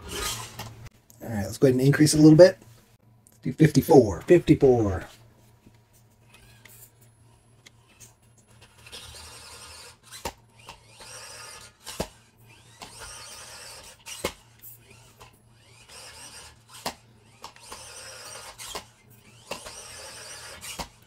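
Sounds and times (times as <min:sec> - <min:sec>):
toy truck motor whining: 0:00.0 - 0:00.7, 0:06.2 - 0:21.0.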